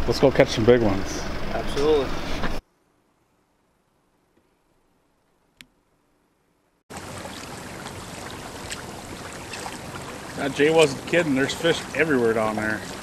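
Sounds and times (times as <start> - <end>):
water and wind noise: 0.0 - 2.6, 6.9 - 13.0.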